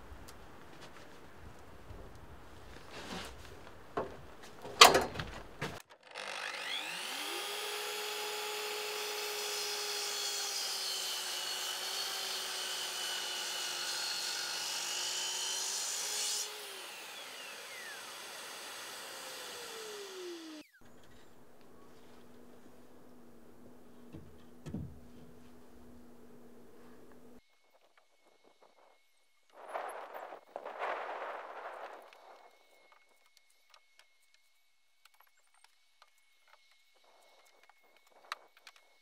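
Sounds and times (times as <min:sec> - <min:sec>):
mitre saw cutting wood: 0:05.9 - 0:21.4
loud thump: 0:24.1 - 0:25.2
knocks: 0:24.1 - 0:25.3.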